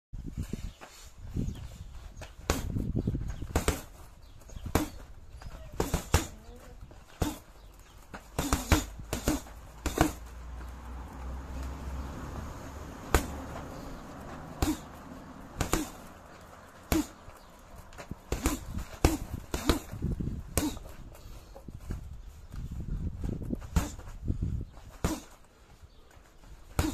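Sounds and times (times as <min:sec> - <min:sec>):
gloves punching heavy bag: 0:02.2 - 0:11.2, 0:13.0 - 0:22.0, 0:23.3 - 0:24.2, 0:24.9 - 0:25.5, 0:26.5 - 0:26.9.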